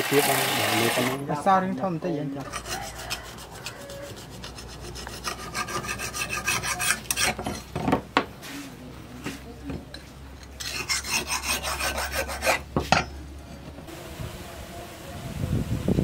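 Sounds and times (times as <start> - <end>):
file rasping on steel blade: 2.4 - 7.7, 10.5 - 13.1.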